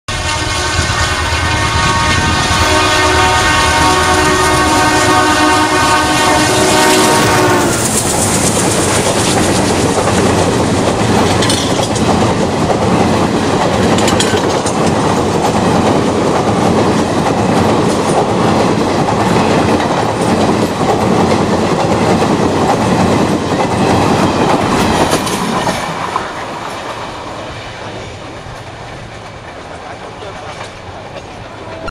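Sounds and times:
locomotive horn blast: 0.1s - 8.0s
train wheels clattering over rail joints: 7.6s - 27.0s, 28.0s - 31.9s.

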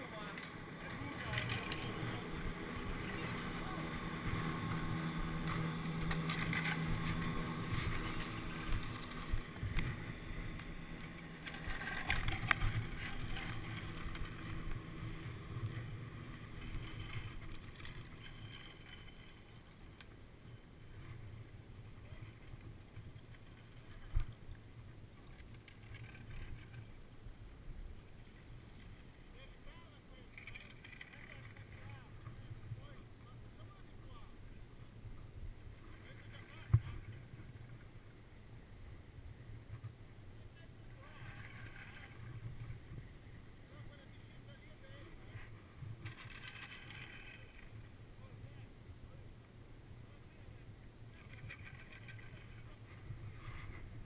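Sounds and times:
lift machine hum: 0.0s - 19.1s.

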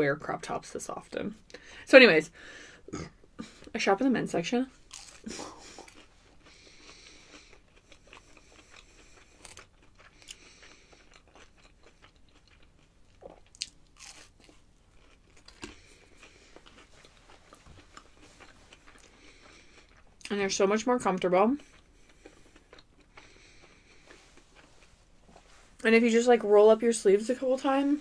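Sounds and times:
chewing crunchy food: 4.8s - 25.2s.

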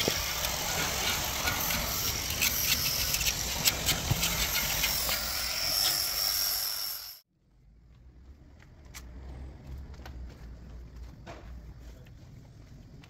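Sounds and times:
metal blade scraping paint off iron: 0.0s - 6.3s.

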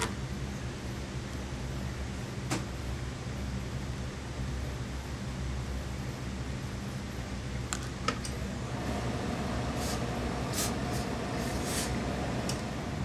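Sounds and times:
steady low hum: 0.0s - 13.0s
steam iron hissing: 8.8s - 12.6s.

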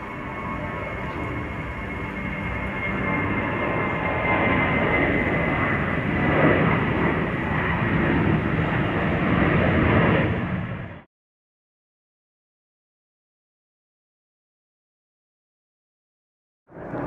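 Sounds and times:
jet airliner passing overhead: 0.0s - 11.1s, 16.7s - 17.0s.

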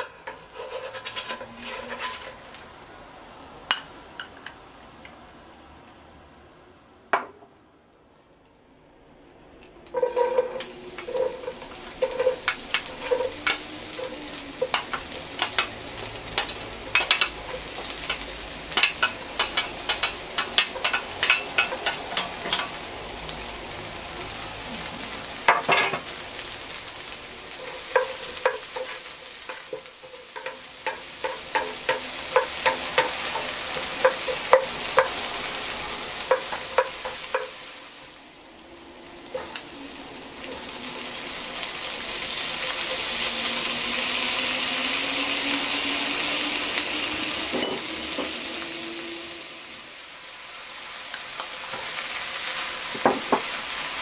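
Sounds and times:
onions sizzling in oil: 0.0s - 5.4s, 9.9s - 54.0s
utensil tapping against pan: 30.4s - 35.2s.

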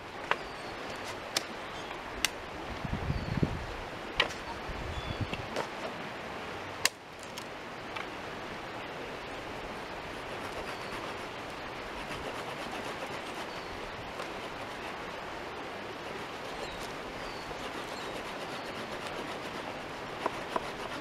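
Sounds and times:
dry stick snapping: 1.0s - 1.5s, 2.2s - 2.4s
fast-flowing creek rushing: 7.5s - 21.0s.

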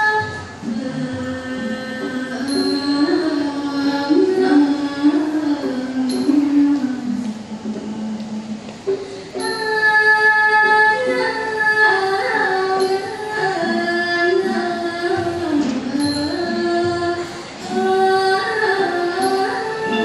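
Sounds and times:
girl singing into microphone: 0.0s - 20.0s
faint high ring: 2.5s - 3.3s.

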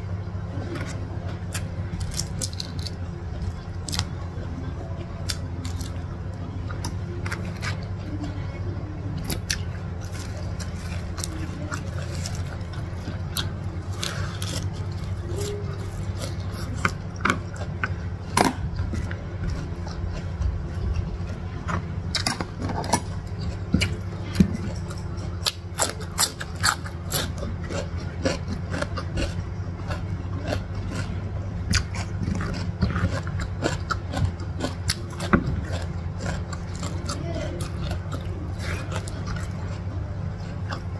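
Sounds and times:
steady low hum: 0.0s - 40.9s.

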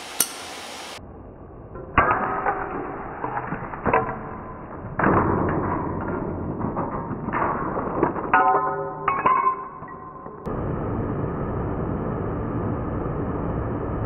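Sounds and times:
glass shattering: 3.4s - 10.5s.

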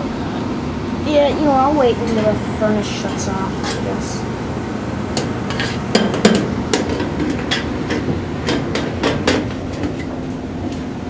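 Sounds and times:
furnace blower humming: 0.0s - 11.0s
sharp clicks and knocks: 5.2s - 10.8s.

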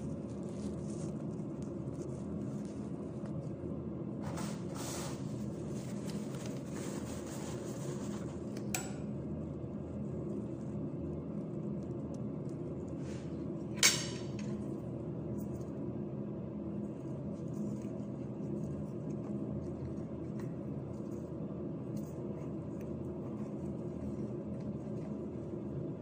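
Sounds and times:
plastic gloves rustling: 0.0s - 8.6s
kitchen background hum: 0.0s - 26.0s.

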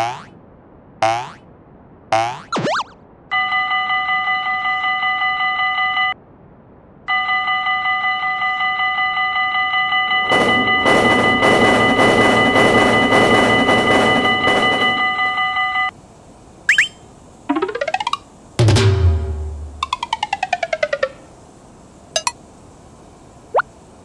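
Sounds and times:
crossing warning bell ringing: 7.1s - 15.9s.

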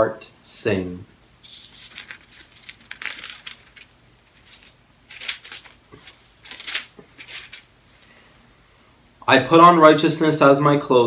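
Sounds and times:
thin paper rustling: 1.4s - 8.0s.

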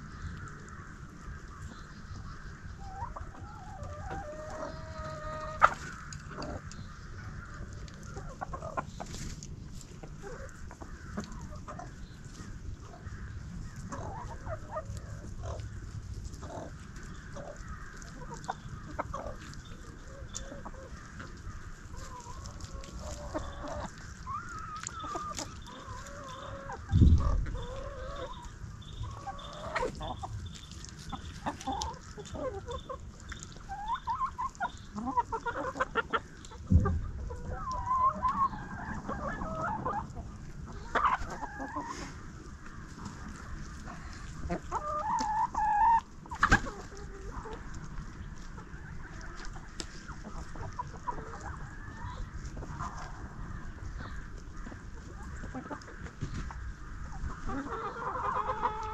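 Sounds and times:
chickens clucking: 0.0s - 58.9s
dull low thumps: 36.6s - 37.8s.

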